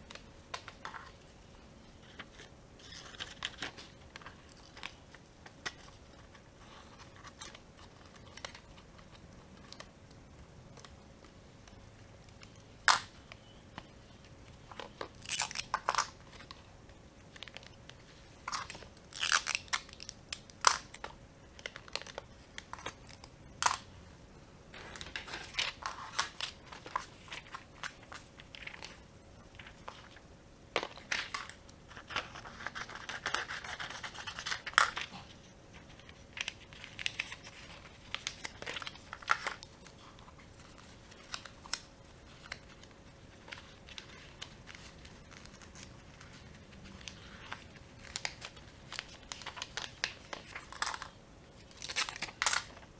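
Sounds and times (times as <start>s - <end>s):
paper rustling and crinkling: 24.7s - 30.2s, 30.8s - 52.9s.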